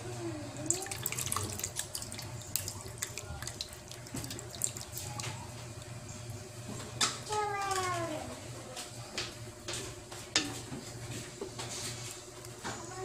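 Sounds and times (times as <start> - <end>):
liquid sloshing and splashing: 0.6 - 6.0.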